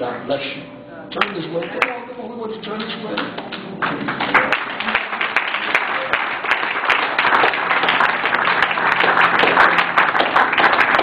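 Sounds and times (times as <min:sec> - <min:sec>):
crowd applauding: 0:01.2 - 0:02.1, 0:03.1 - 0:11.0.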